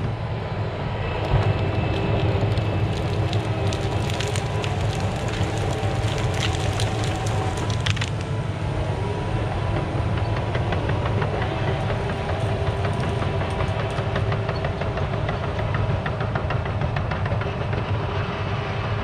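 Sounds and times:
distant diesel engine rumble: 0:01.0 - 0:17.8
rapid clicks and clanks: 0:10.2 - 0:18.0.

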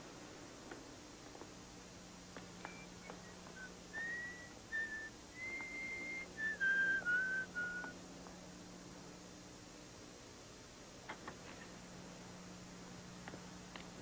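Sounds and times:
person whistling a tune: 0:02.6 - 0:08.0.

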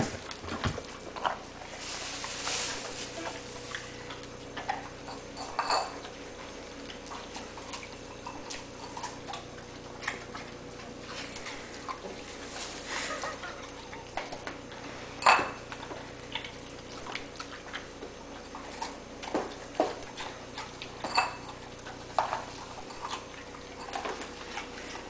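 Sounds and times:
dog chewing: 0:00.0 - 0:25.0
bowl clinking on tiled floor: 0:15.2 - 0:15.6.

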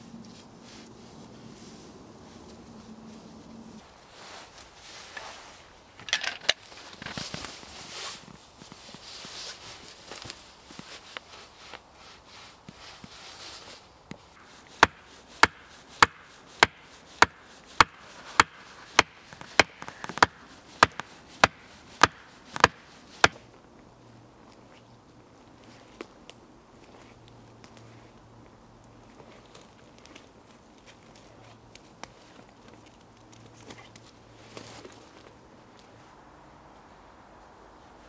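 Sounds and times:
rustling: 0:00.0 - 0:36.2
axe chopping wood: 0:14.4 - 0:23.4.

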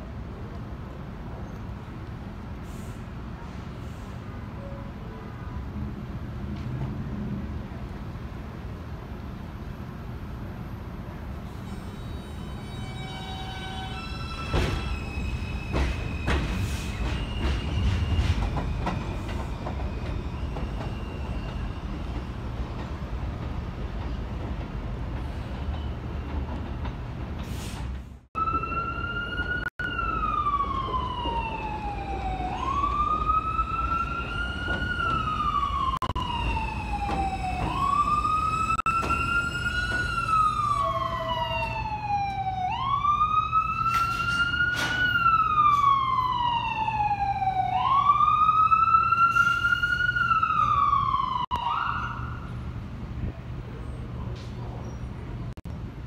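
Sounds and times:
subway train rumbling: 0:00.0 - 0:56.0
emergency vehicle siren wailing: 0:28.4 - 0:52.6.

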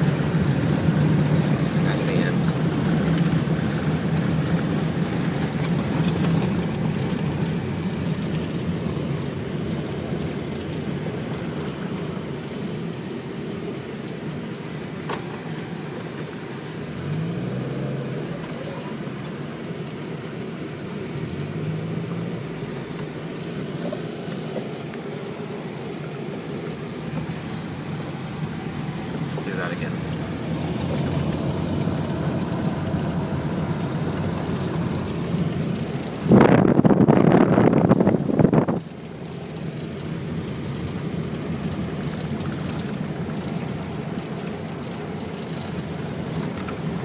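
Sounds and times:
car engine: 0:00.0 - 0:47.0
road noise inside car: 0:00.0 - 0:47.0.

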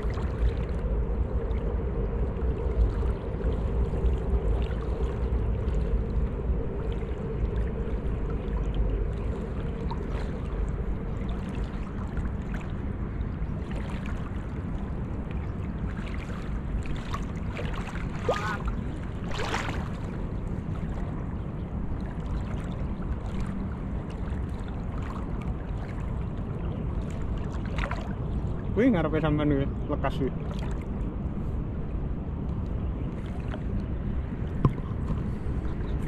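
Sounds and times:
splashes and drips: 0:00.0 - 0:01.8, 0:02.4 - 0:21.2, 0:21.9 - 0:28.7, 0:30.3 - 0:31.1
water sloshing: 0:00.0 - 0:31.4, 0:33.0 - 0:36.0
steady low rumble: 0:00.0 - 0:36.0.

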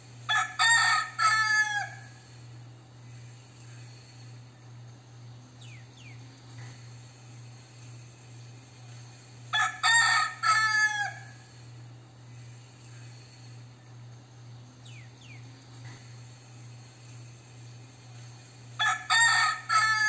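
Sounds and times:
rooster crowing: 0:00.3 - 0:02.3, 0:09.5 - 0:11.6, 0:18.8 - 0:20.0.

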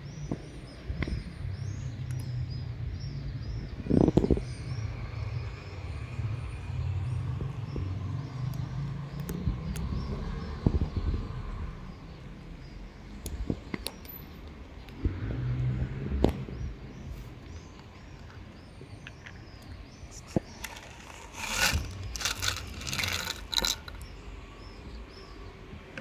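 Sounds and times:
cats crunching kibble: 0:20.1 - 0:24.0
dry kibble scattering onto concrete: 0:20.2 - 0:24.0.

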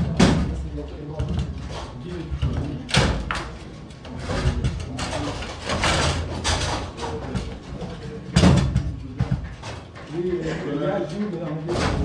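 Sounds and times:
table football knocks and clacks: 0:04.2 - 0:09.9.

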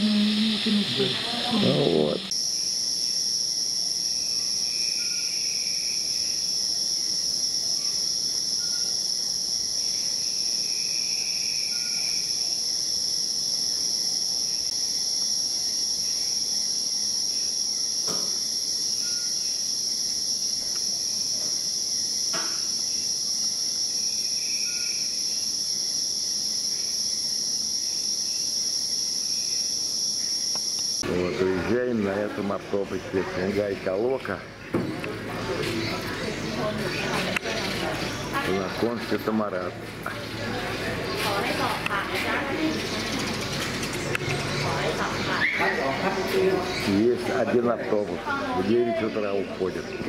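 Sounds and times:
short insect calls: 0:00.0 - 0:32.0
insect chorus drone: 0:00.0 - 0:50.0.

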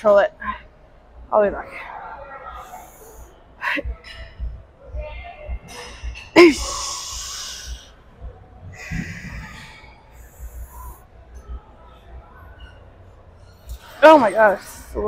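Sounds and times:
woman breathing hard and straining: 0:08.7 - 0:11.0.

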